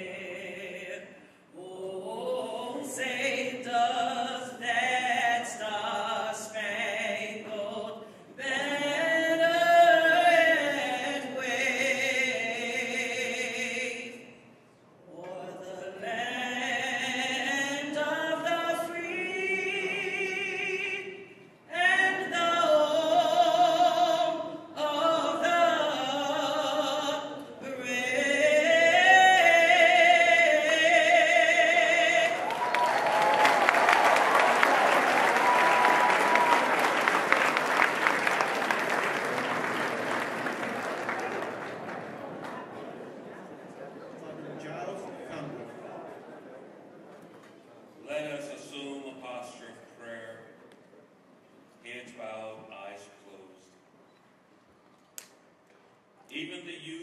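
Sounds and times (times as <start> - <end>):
man singing with vibrato: 0.0 - 32.5
crowd applauding: 32.3 - 42.9.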